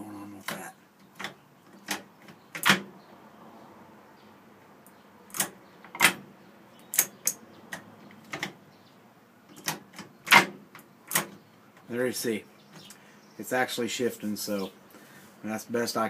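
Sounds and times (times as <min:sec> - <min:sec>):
gear shift metallic clicks: 0:04.9 - 0:08.6.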